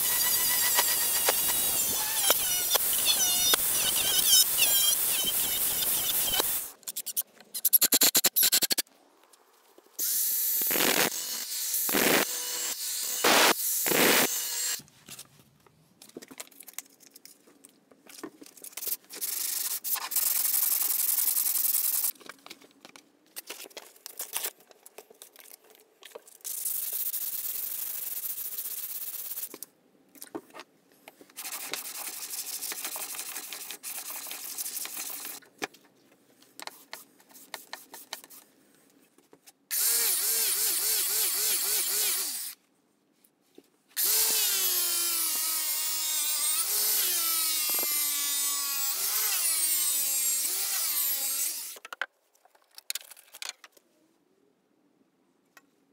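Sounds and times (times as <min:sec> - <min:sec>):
power tool noise: 0:10.0 - 0:14.8
sanding block rubbing on steel: 0:31.4 - 0:35.4.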